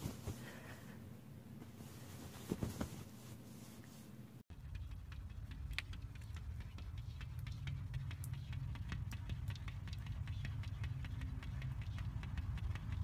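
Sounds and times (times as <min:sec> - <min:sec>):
steady low rumble: 0:04.5 - 0:13.0.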